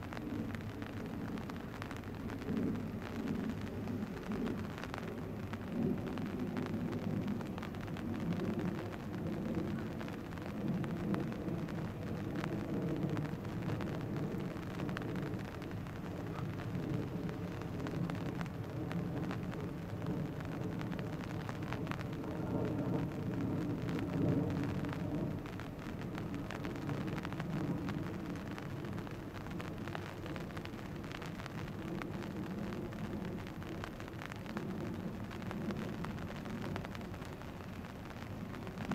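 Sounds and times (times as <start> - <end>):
light crackling: 0.0 - 38.9.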